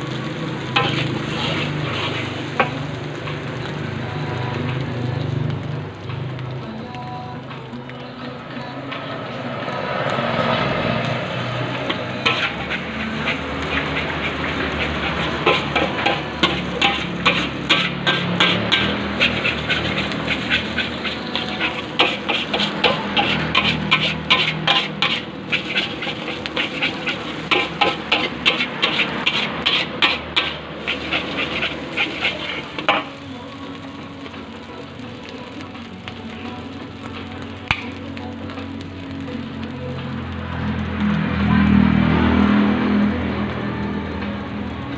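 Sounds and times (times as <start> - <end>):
frying sizzle: 0.0 - 44.9
metal spatula scraping a wok: 0.2 - 3.7, 11.3 - 33.3.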